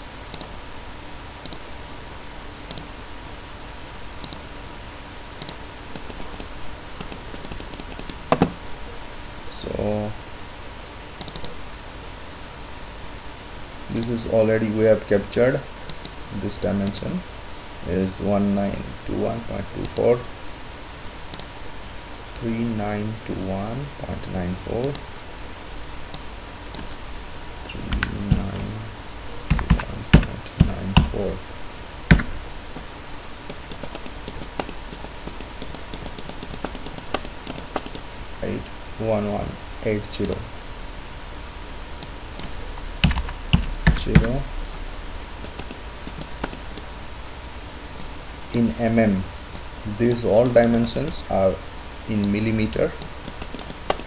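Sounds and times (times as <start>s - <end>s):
mouse clicks: 0.3s - 0.5s, 1.4s - 1.6s, 2.7s - 2.9s, 4.2s - 4.4s, 5.4s - 8.6s, 11.2s - 11.6s, 21.3s - 21.5s, 33.5s - 38.0s, 45.4s - 47.4s, 53.0s - 54.0s
keyboard keys tapping: 27.7s - 28.8s, 29.5s - 31.3s, 32.1s - 32.4s, 42.4s - 44.4s
keyboard keystrokes: 29.5s - 31.1s, 32.1s - 32.3s, 33.5s - 38.0s, 42.4s - 44.3s.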